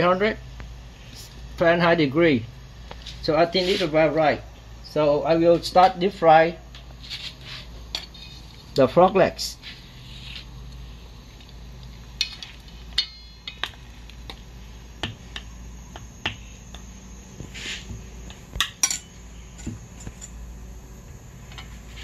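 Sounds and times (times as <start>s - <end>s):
steady low hum: 0.0s - 22.0s
short hiss: 17.5s - 17.9s.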